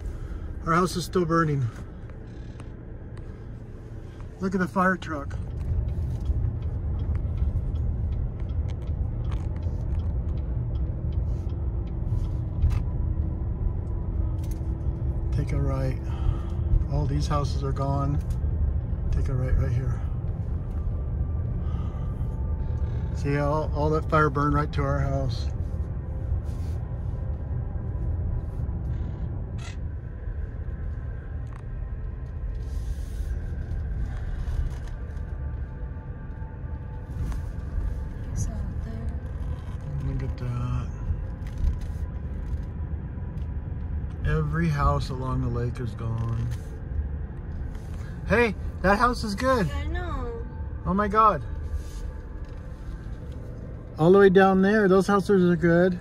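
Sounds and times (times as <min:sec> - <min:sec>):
car engine and road rumble: 0:00.0 - 0:56.0
faint steady hum: 0:00.0 - 0:56.0.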